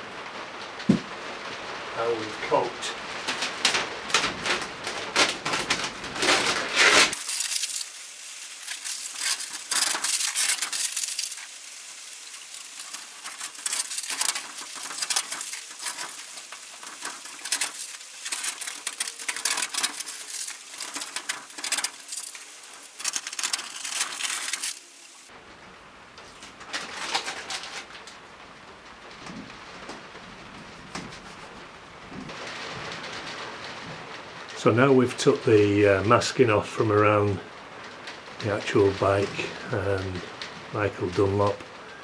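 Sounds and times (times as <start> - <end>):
tape peeling off steel door: 3.2 - 25.3.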